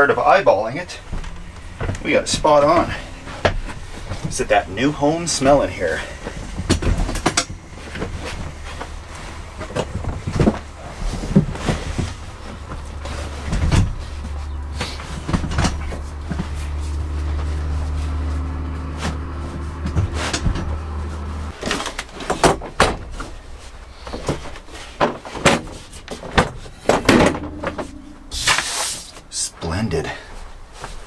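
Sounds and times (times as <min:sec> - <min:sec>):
steady low hum: 0:00.0 - 0:21.6, 0:25.8 - 0:30.8
things being handled and set down: 0:01.0 - 0:29.2
echoing thumps: 0:27.0 - 0:28.6.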